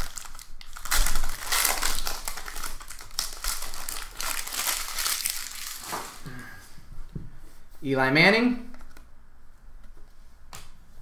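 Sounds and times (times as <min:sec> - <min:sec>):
foil pack tearing and crinkling: 0:00.0 - 0:06.3.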